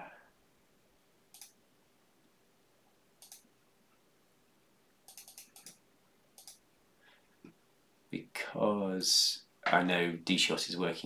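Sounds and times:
computer mouse and keyboard clicking: 0:01.3 - 0:01.6, 0:03.2 - 0:03.4, 0:05.1 - 0:05.8, 0:06.4 - 0:06.6.

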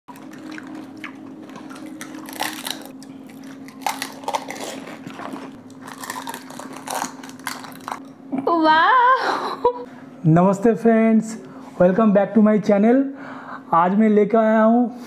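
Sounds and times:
chewing: 0:00.1 - 0:08.1
crisp puris crunching: 0:00.1 - 0:08.1
faint steady hum: 0:00.1 - 0:15.0.

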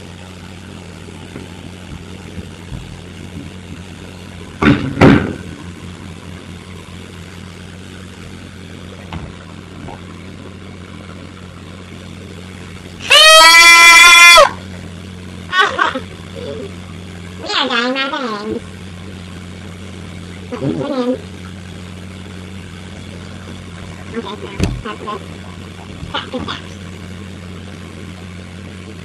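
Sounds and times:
electrical hum: 0:00.0 - 0:29.0
loud thumps: 0:04.6 - 0:05.6, 0:24.6 - 0:24.9
person squealing: 0:13.0 - 0:14.6.

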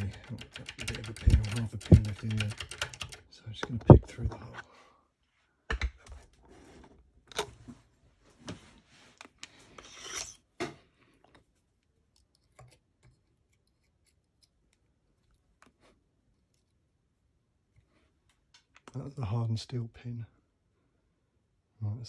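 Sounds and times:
steel pick scraping in lock: 0:09.8 - 0:10.4.

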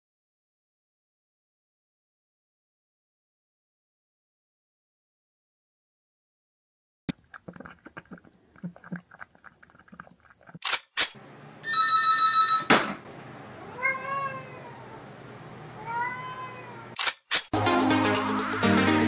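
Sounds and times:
cat lapping water: 0:07.1 - 0:10.6
landline telephone ringing: 0:11.6 - 0:12.7
cat meowing: 0:13.6 - 0:15.0, 0:15.8 - 0:17.0.

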